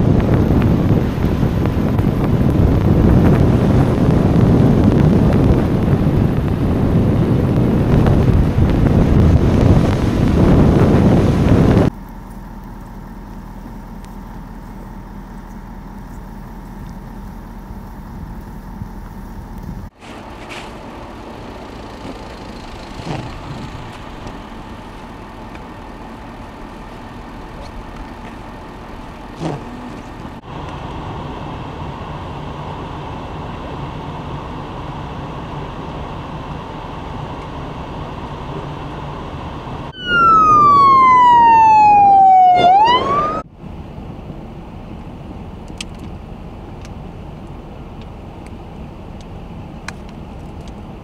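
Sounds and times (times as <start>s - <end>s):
siren wailing: 39.9s - 43.5s
steady rumble and hiss: 43.4s - 51.0s.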